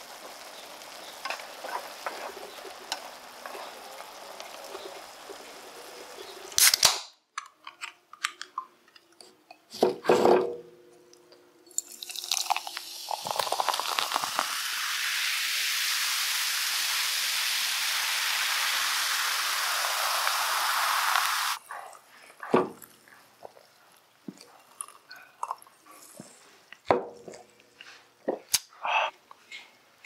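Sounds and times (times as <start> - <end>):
fizzing cola poured into mug: 0.0 - 6.7, 11.7 - 21.6
sharp burst of can opening: 6.5 - 7.2, 11.8 - 21.6
can clicking open: 6.6 - 8.6.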